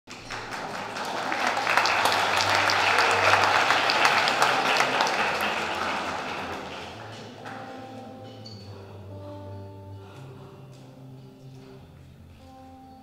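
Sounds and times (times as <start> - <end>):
audience applauding: 0.1 - 8.0.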